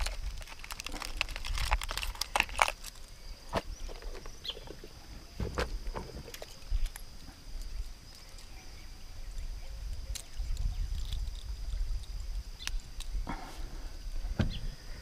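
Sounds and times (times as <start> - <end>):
wind rumbling on microphone: 3.5 - 15.0.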